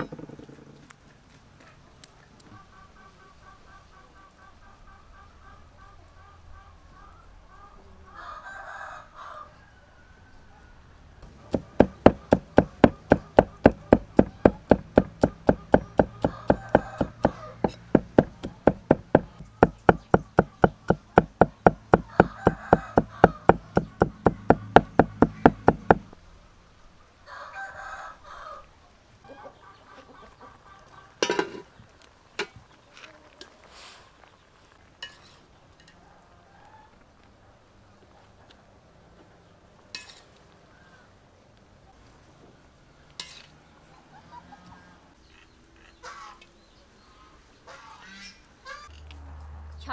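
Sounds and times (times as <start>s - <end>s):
rooster crowing: 7.6s - 11.0s, 15.6s - 19.4s, 20.0s - 26.0s, 27.2s - 28.7s
cleaver chopping on wooden block: 11.2s - 26.1s.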